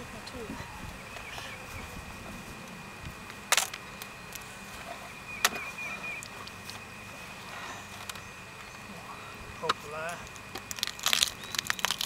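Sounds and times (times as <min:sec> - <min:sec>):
sharp wooden crack: 0:10.6 - 0:12.0.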